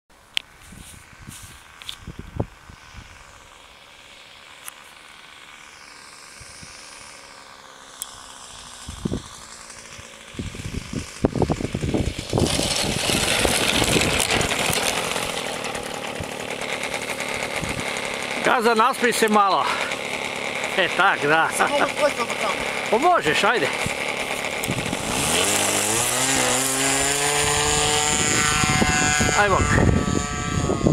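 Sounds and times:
model airplane engine buzzing: 0:00.2 - 0:30.9.

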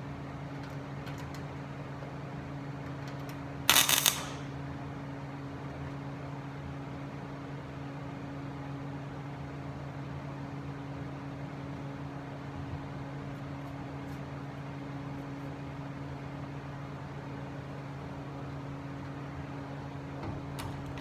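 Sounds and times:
steady machine hum: 0:00.0 - 0:21.0
welder arc crackling: 0:03.7 - 0:04.6.

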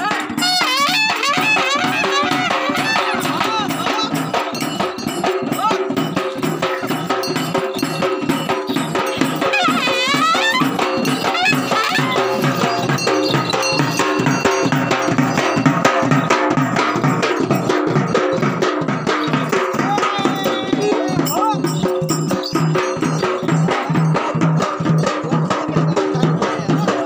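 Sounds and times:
drums playing a fast rhythm: 0:00.0 - 0:27.0
high wavering call: 0:09.0 - 0:14.6.

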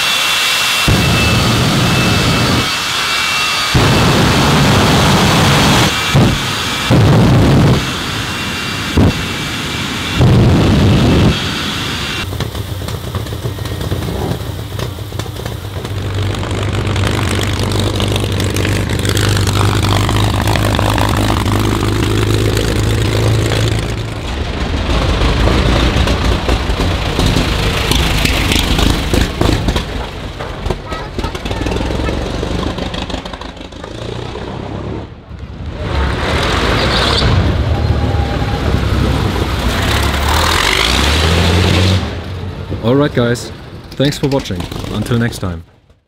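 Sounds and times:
jet engine blasts: 0:00.0 - 0:45.6
racing car engines passing: 0:31.4 - 0:43.9.

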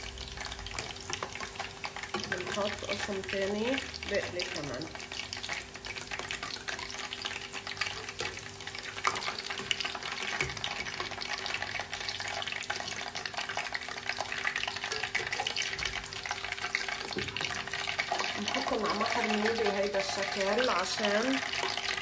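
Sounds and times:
food deep-frying in hot oil: 0:00.0 - 0:22.0.

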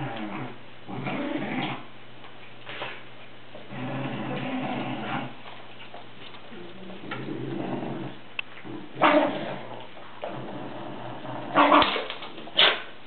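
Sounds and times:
dog growling: 0:00.0 - 0:01.9, 0:03.7 - 0:05.4, 0:06.5 - 0:11.9
dogs barking: 0:09.0 - 0:09.4, 0:11.6 - 0:12.0.

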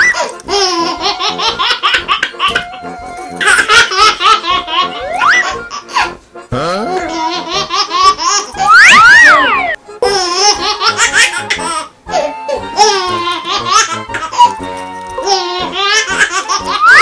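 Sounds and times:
high-pitched giggling: 0:07.1 - 0:11.6.

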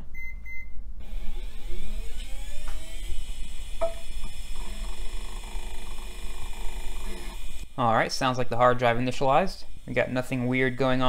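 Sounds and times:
hard drive spinning up whine: 0:01.0 - 0:07.7.

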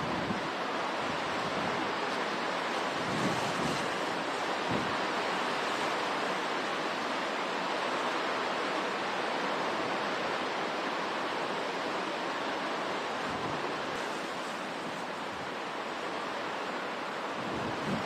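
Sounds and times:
strong wind: 0:00.0 - 0:07.8, 0:12.4 - 0:18.0
driving rain: 0:00.0 - 0:18.0.

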